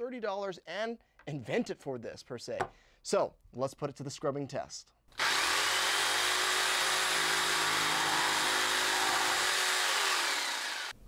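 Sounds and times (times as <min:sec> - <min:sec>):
electric jigsaw cutting plastic: 0:05.2 - 0:11.0.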